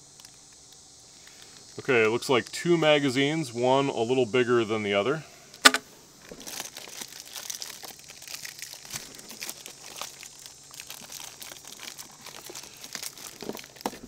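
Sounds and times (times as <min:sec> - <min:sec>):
plastic packaging crinkling and tearing: 0:00.0 - 0:02.5, 0:06.2 - 0:14.0.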